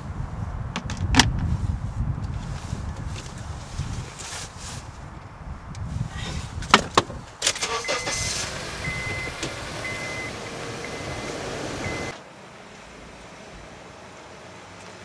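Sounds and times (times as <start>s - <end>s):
ignition clicks: 7.4s - 12.2s
car engine starting and running: 7.4s - 15.0s
seat belt warning chime beeping: 7.7s - 12.2s.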